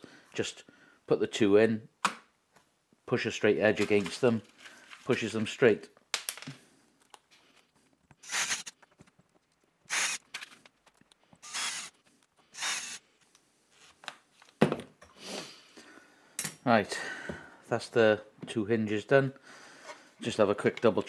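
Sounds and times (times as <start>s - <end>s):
cordless drill driving screws: 8.2s - 8.8s, 9.9s - 10.4s, 11.4s - 13.0s.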